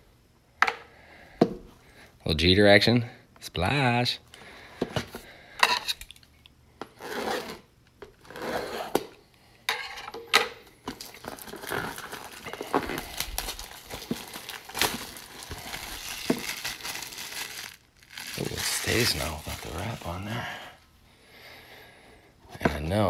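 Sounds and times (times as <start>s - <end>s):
shrink-wrap crinkling and tearing: 10.9s - 20.6s.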